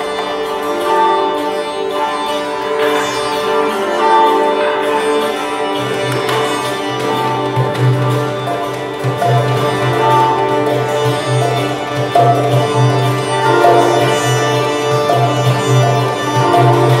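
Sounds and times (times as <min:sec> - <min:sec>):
koto: 0:00.0 - 0:17.0
sitar melody with drone: 0:00.0 - 0:17.0
hand drum deep beat: 0:09.0 - 0:14.2, 0:15.0 - 0:17.0.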